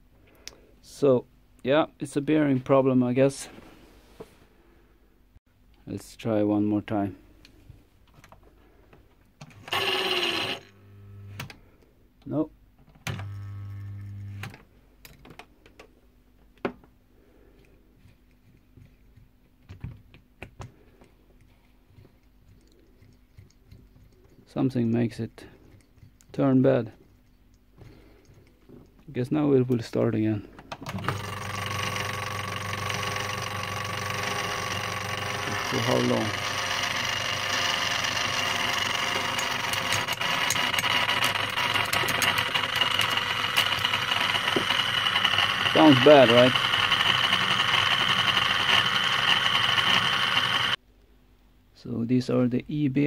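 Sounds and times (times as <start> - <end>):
fan motor humming: 30.8 - 50.8
fast irregular ticking and rattling: 31.0 - 50.8.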